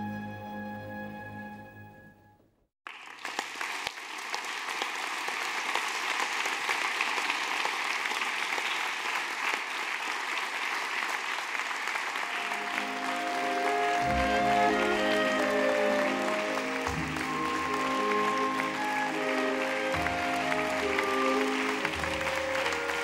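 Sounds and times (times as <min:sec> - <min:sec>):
audience applause: 0:02.9 - 0:23.0
ballet music: 0:12.3 - 0:23.0.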